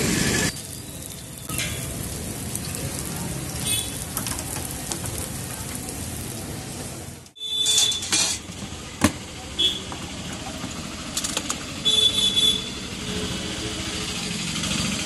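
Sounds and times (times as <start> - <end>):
patties sizzling in oil: 0.4 - 7.3.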